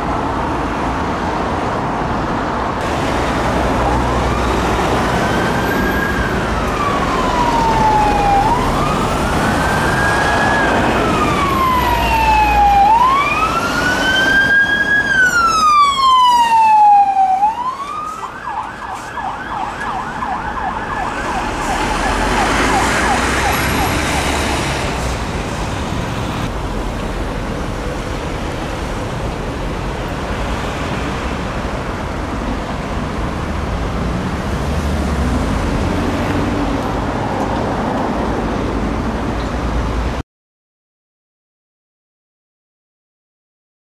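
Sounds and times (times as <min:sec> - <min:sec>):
road traffic noise: 0:00.0 - 0:40.2
police siren wailing and yelping: 0:04.0 - 0:24.4.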